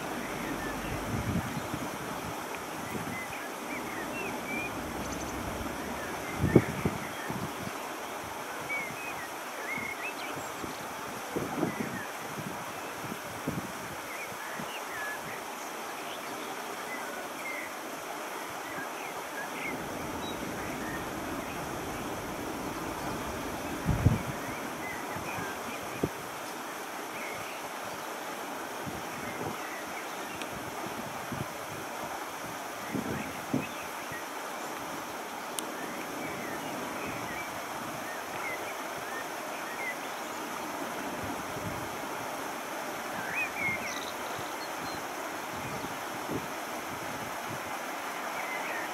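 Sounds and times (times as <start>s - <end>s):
small birds chirping: 0.0s - 2.0s, 2.8s - 7.5s, 19.4s - 26.6s
distant jet engines: 0.0s - 7.1s, 19.5s - 25.7s
wind on microphone: 0.0s - 9.0s, 10.4s - 14.0s, 19.5s - 26.4s, 30.5s - 33.8s, 40.6s - 42.4s, 43.0s - 47.8s
jet airliner landing: 19.7s - 24.8s.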